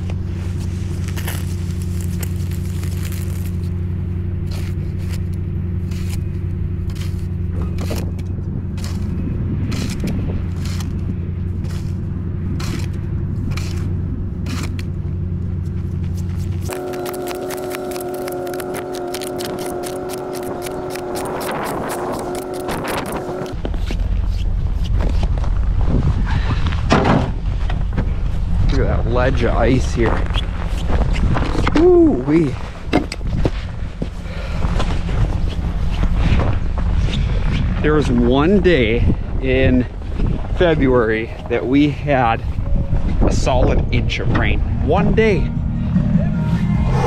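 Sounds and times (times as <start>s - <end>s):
steady low drone: 0.0s - 31.4s, 33.1s - 47.0s
snow shovel scraping snow: 0.2s - 3.7s, 4.4s - 8.0s, 8.8s - 11.0s, 11.6s - 12.0s, 16.3s - 24.4s.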